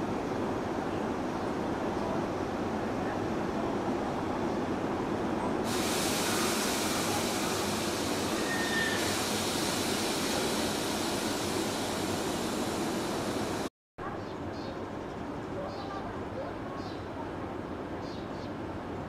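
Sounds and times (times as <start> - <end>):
steady hiss: 5.7 - 13.7
train equipment running: 5.7 - 13.7.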